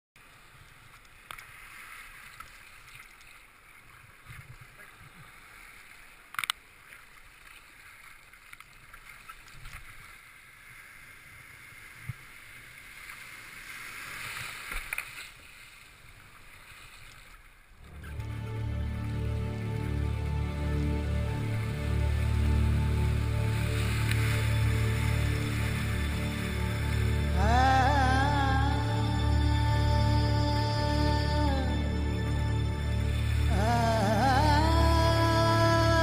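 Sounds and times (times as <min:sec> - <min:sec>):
sea surf splashing around kayak: 0:00.2 - 0:18.2, 0:21.1 - 0:28.4
paddle splashes: 0:00.2 - 0:27.8.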